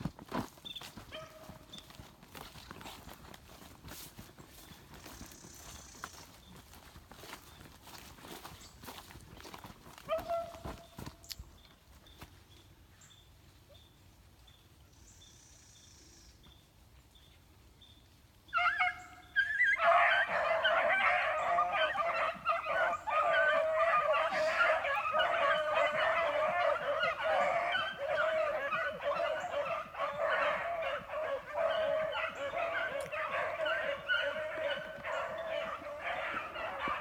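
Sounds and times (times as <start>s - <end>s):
beagles baying: 18.5s - 37.0s.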